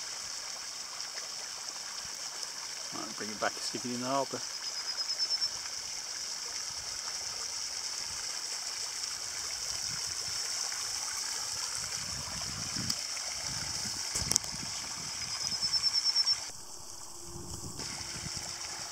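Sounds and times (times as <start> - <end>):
steady high hiss: 2.9 - 5.5, 13.8 - 18.9
quick rising trill: 16.0 - 18.9.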